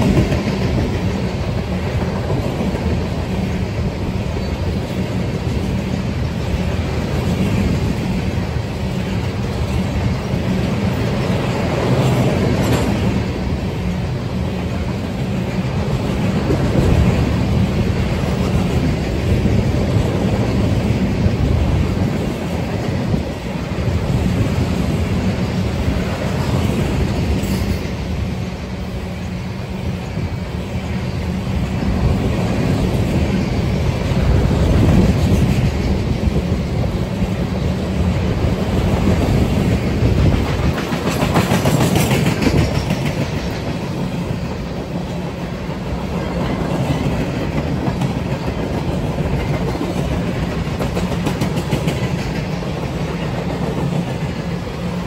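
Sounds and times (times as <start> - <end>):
wheels clicking over rail joints: 0.0 - 14.0, 33.9 - 55.0
freight train rumble: 0.0 - 55.0.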